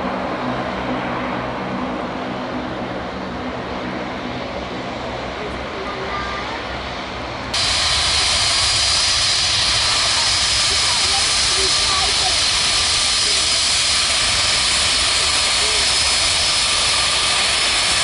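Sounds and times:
jet engine noise: 0.0 - 18.0
hiss of spray: 7.6 - 18.0.

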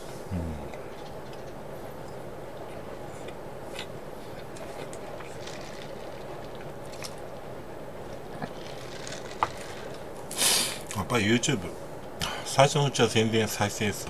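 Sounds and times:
background hiss: 0.0 - 14.0
person chewing: 2.6 - 7.4, 8.0 - 11.0.

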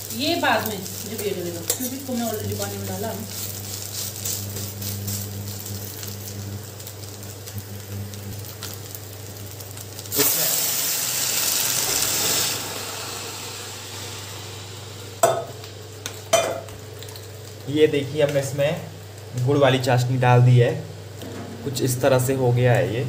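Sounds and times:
syrup hissing in a hot pot: 0.0 - 15.9
pot sizzling quietly: 0.0 - 23.0.

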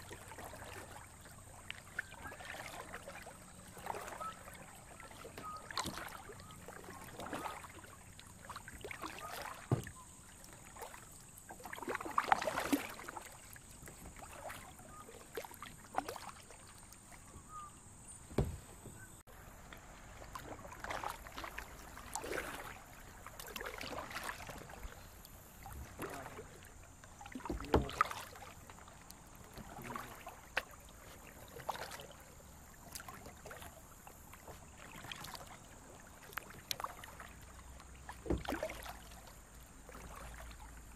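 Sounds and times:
paddle strokes splashing water: 0.0 - 40.9
sharp knocks: 18.3 - 19.0.

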